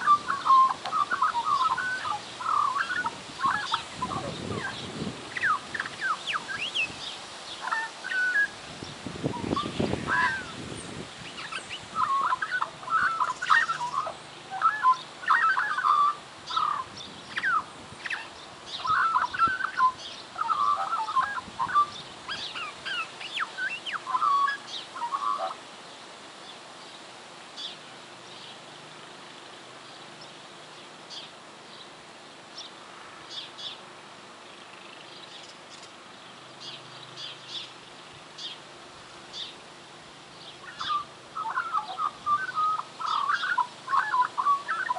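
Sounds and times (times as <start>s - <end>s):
magpie vocalising: 0.0s - 6.9s, 9.3s - 10.6s, 11.3s - 25.6s, 40.6s - 44.9s.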